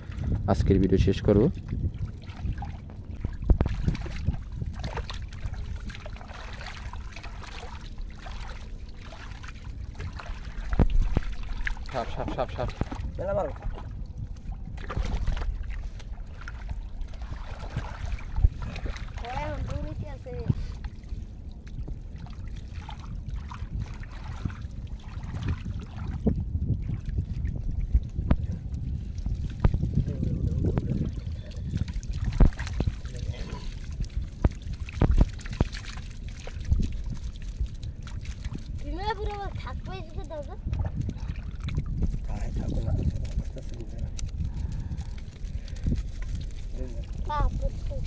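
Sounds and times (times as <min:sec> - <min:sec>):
low rumble: 0:00.0 - 0:48.0
water trickling: 0:00.0 - 0:48.0
hands splashing in muddy water: 0:02.2 - 0:20.0, 0:28.6 - 0:48.0.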